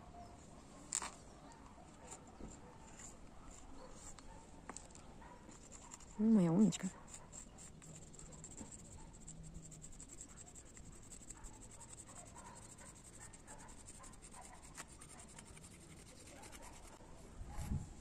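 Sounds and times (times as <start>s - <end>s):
chalk scraping on concrete: 7.0s - 17.0s.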